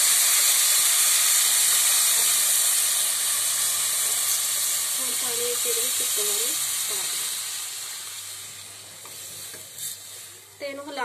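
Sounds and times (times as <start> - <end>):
water sizzling in hot wok: 0.0 - 11.0.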